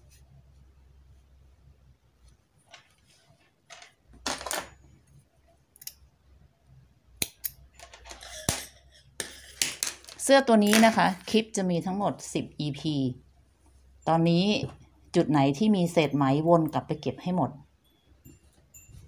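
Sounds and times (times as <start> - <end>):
knitted fabric rustling: 2.1 - 3.6.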